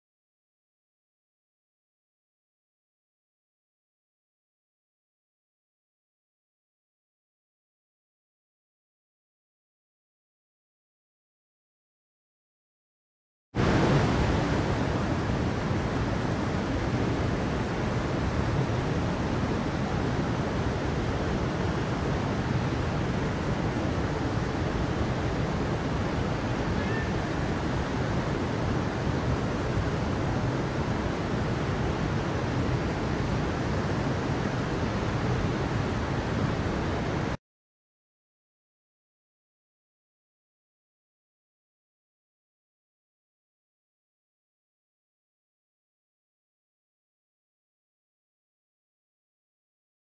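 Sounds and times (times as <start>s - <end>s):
stream rushing over rocks: 13.6s - 37.4s.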